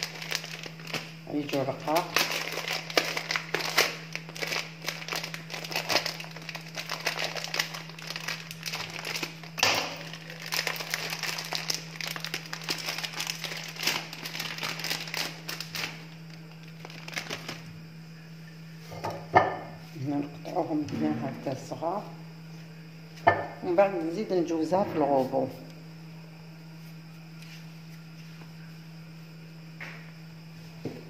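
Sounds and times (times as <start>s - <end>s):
plastic packaging crinkling: 0.0s - 17.8s
steady low hum: 0.0s - 31.0s.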